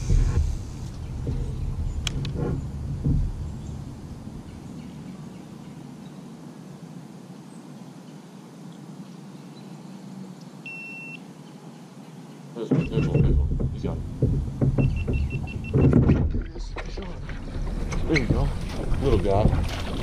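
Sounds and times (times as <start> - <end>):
low thump: 0.0 - 5.0, 12.7 - 20.0
background hiss: 0.0 - 20.0
short electronic beep: 10.7 - 11.2.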